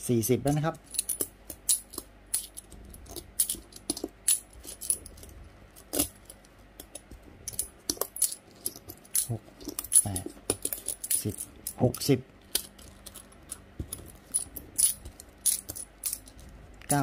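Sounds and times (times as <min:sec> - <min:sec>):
coins clinking together: 0:07.5 - 0:12.1, 0:14.2 - 0:16.3.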